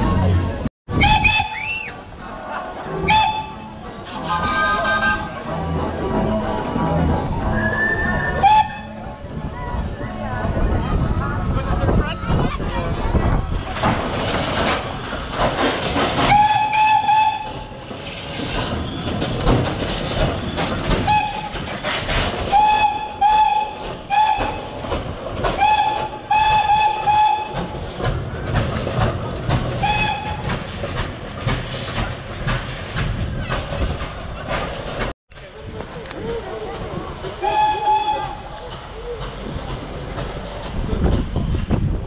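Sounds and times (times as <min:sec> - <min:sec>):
street noise: 0:00.0 - 0:42.0
steam whistle blasts: 0:16.3 - 0:17.7, 0:37.4 - 0:38.4.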